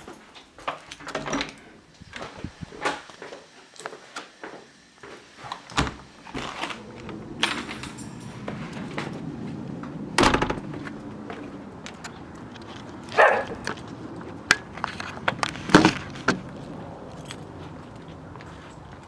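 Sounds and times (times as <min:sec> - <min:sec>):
door and latch sounds: 0:00.8 - 0:03.0, 0:05.5 - 0:09.1, 0:10.2 - 0:10.9
footsteps: 0:02.1 - 0:19.0.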